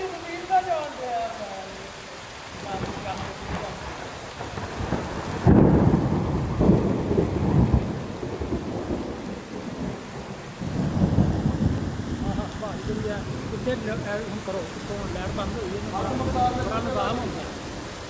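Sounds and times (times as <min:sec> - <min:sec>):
heavy rain pouring: 0:00.0 - 0:18.0
thunder rumbling: 0:02.5 - 0:18.0.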